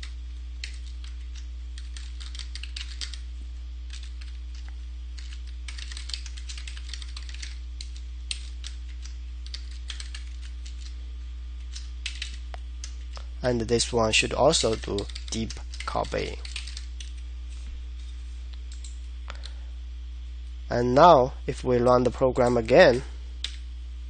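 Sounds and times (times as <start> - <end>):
computer keyboard typing: 0.0 - 3.2, 3.9 - 11.0, 11.6 - 13.2, 14.2 - 17.2, 18.7 - 19.6, 23.4 - 23.6
low electrical hum: 0.0 - 24.0.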